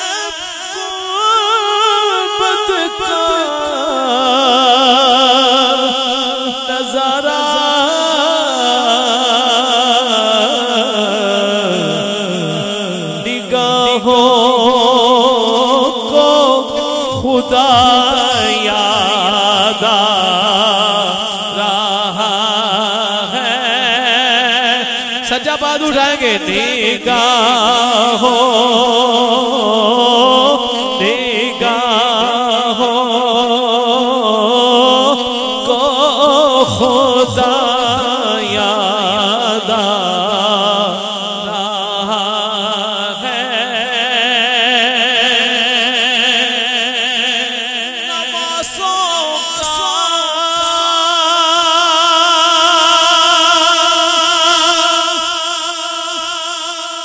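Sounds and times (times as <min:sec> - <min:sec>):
man singing into a microphone: 0:00.0 - 0:57.0.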